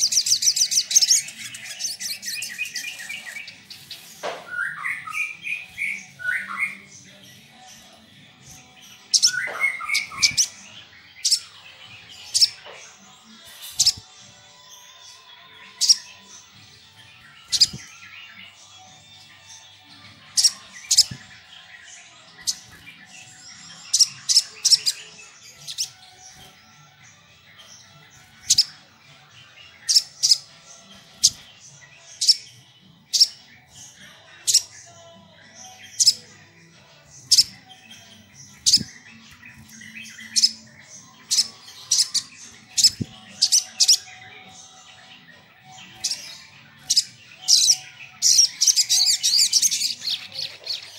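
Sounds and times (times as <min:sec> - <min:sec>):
bird high sharp chirps: 0:17.4 - 0:17.9.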